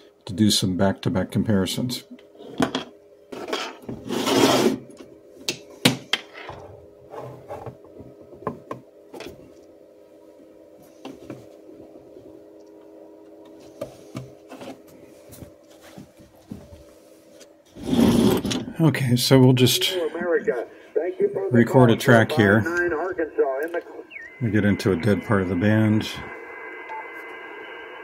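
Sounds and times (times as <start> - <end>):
faint steady hum: 0.0 - 28.0
sheet metal cover scraping: 3.4 - 4.8, 17.7 - 18.7.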